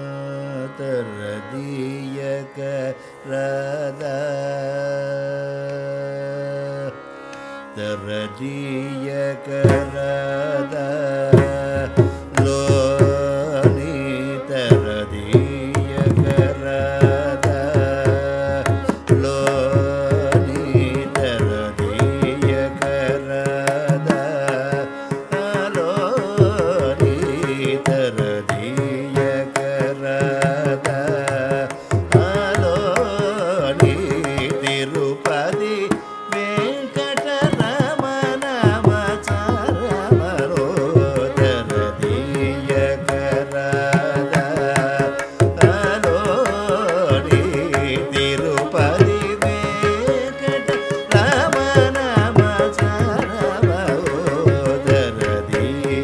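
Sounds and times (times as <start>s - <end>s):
hand drum fast rhythm: 47.3s - 55.1s.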